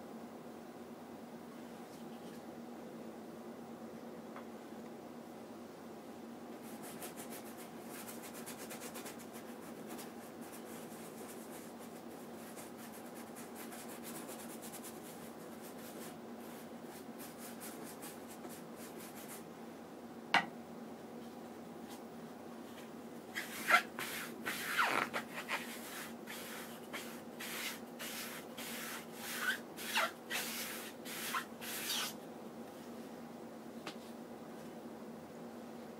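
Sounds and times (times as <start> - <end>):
brush strokes on canvas: 23.3 - 32.2.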